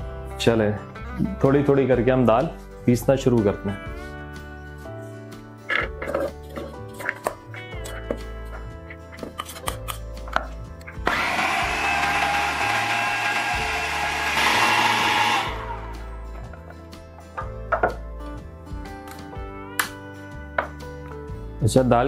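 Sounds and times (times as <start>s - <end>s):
food processor motor grinding: 10.9s - 16.1s.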